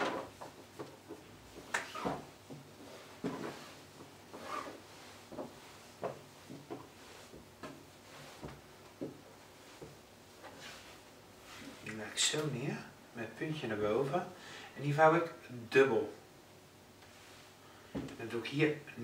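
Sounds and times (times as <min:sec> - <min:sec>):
hands brushing a towel: 0:00.4 - 0:11.9, 0:17.0 - 0:17.6.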